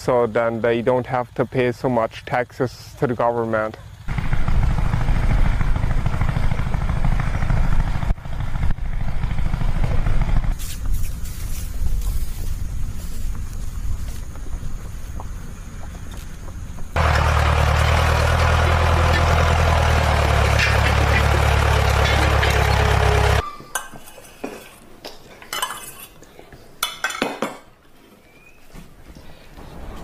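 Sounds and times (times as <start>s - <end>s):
tractor engine running: 3.8s - 10.6s, 11.2s - 23.4s.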